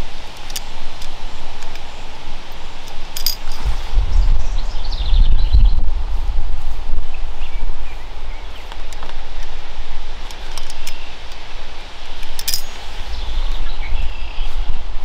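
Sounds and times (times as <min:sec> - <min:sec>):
tent clips clicking: 0:00.0 - 0:03.8, 0:08.7 - 0:13.0
wind rumble on microphone: 0:00.0 - 0:15.0.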